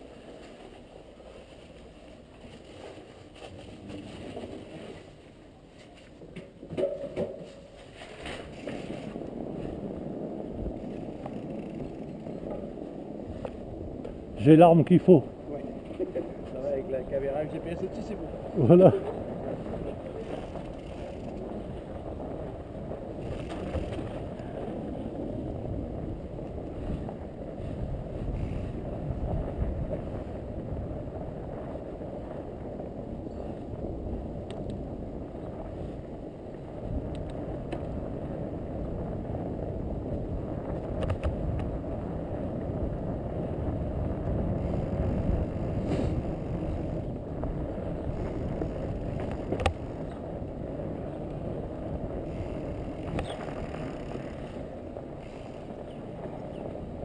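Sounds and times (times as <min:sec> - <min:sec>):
bike tyres rolling through snow: 0:00.0 - 0:57.0
faint clicks: 0:34.4 - 0:34.8, 0:37.1 - 0:38.0, 0:48.4 - 0:50.2, 0:52.4 - 0:54.5.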